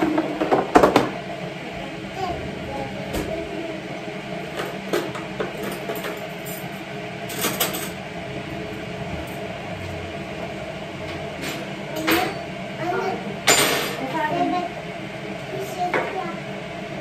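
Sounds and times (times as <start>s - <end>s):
steady mechanical hum: 0.0s - 17.0s.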